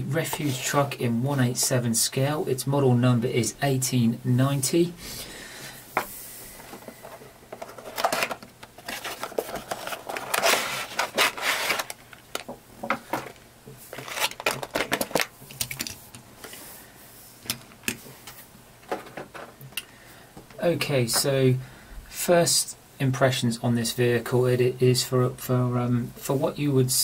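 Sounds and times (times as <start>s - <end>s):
packaging rustling and scraping: 6.5s - 16.6s.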